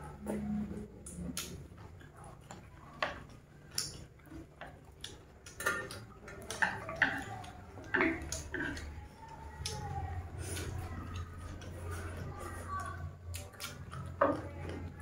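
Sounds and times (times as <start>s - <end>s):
chewing food: 0.0s - 15.0s
chopsticks clicking on wooden bowls: 1.0s - 11.7s.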